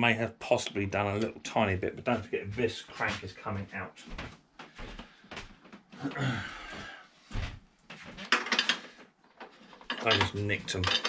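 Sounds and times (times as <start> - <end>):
metal tools knocking and clinking: 9.7 - 11.0.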